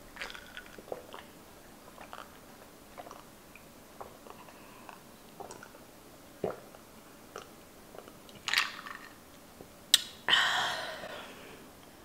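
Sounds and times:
swallowing and mouth sounds: 0.2s - 5.8s, 6.4s - 9.1s.

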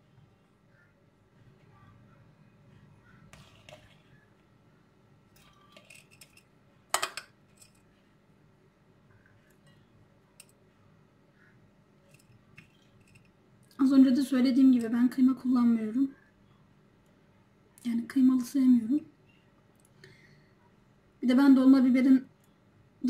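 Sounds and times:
metal spoon scraping a bowl: 3.3s - 4.2s.

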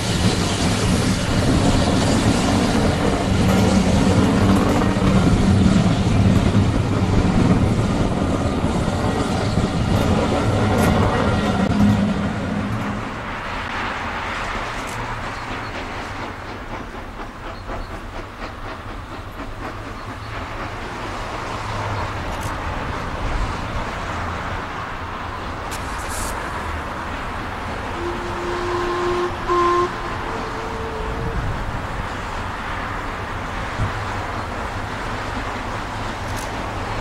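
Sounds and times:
steam locomotive rumbling and hissing: 0.0s - 37.0s
steam locomotive whistle: 27.9s - 31.8s.

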